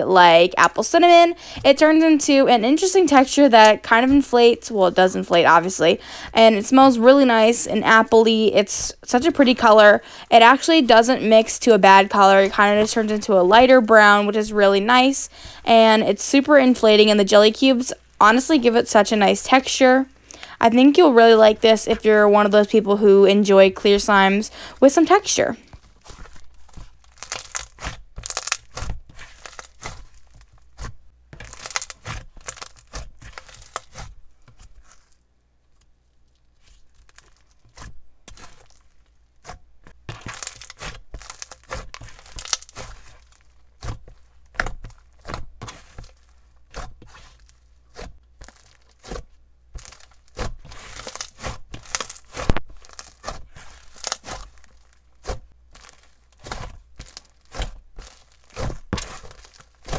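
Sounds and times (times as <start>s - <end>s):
slime crackling and popping: 25.8s - 35.2s, 36.6s - 59.9s.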